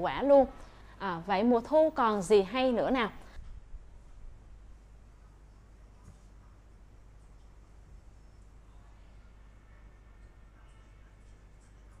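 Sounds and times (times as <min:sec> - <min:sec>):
faint low hum and hiss: 0:00.0 - 0:12.0.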